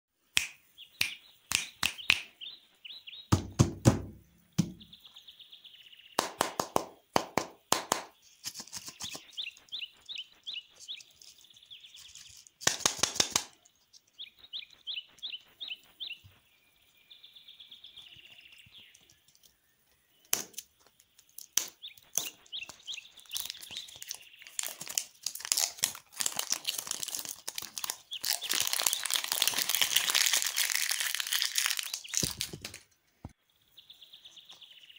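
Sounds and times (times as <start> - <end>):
plastic wrappers crinkling: 21.0 - 32.9.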